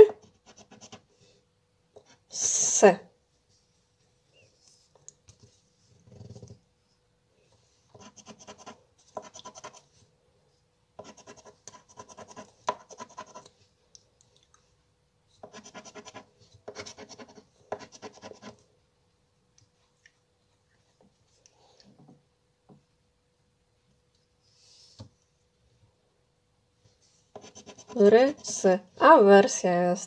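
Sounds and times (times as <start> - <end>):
scraper rubbing scratch card: 0.2 - 1.0, 8.0 - 9.9, 11.0 - 13.5, 15.5 - 18.6, 27.4 - 28.6.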